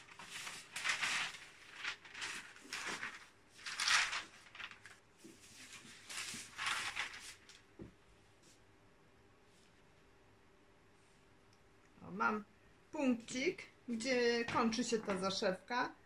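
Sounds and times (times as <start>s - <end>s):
paper rustling: 0.0s - 7.9s.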